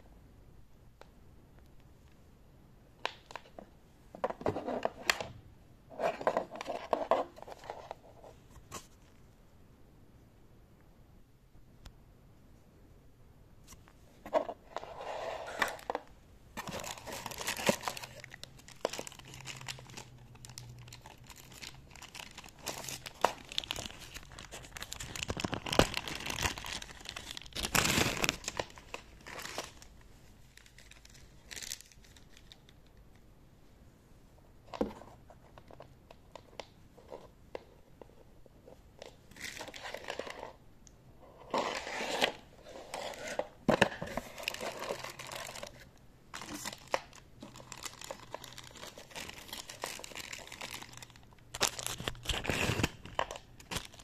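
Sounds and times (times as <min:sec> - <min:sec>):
plastic packaging crinkling: 0:16.6 - 0:32.8, 0:42.9 - 0:54.0.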